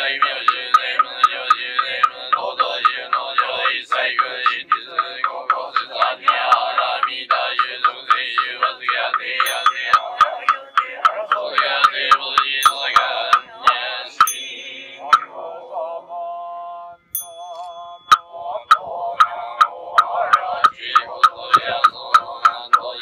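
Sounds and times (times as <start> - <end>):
group chanting: 0.0 - 16.9, 18.3 - 23.0
sharp wooden knocks: 20.0 - 23.0.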